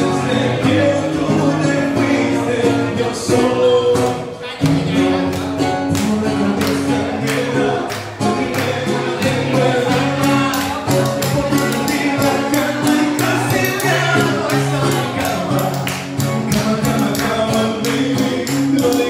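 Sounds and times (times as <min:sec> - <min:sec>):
acoustic guitar: 0:00.0 - 0:19.0
man singing: 0:00.0 - 0:19.0
steady beat: 0:09.2 - 0:19.0.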